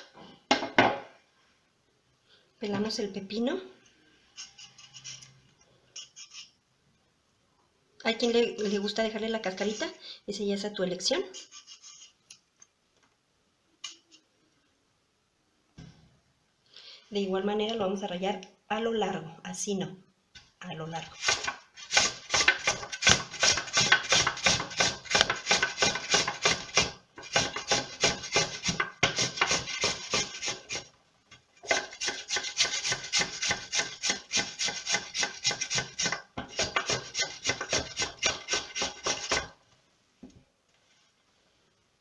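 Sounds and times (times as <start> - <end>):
cucumber rasping on metal grater: 21.1 - 30.9, 31.7 - 39.4.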